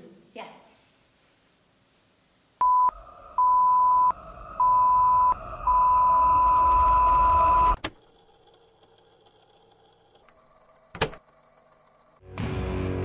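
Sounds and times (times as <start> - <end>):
electronic beep tone: 2.6 - 7.8.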